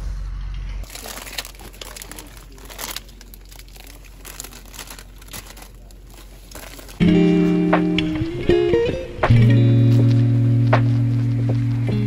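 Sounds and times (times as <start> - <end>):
plastic packets crinkling: 0.8 - 7.2
loud guitar music: 7.0 - 12.0.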